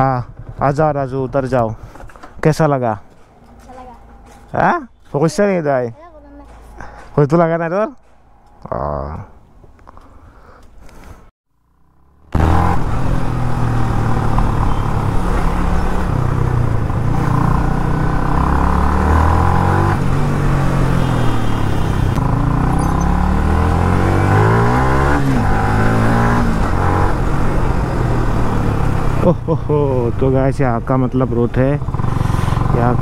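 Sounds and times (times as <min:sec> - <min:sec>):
motorcycle engine accelerating: 0:00.0 - 0:02.2, 0:11.6 - 0:33.0.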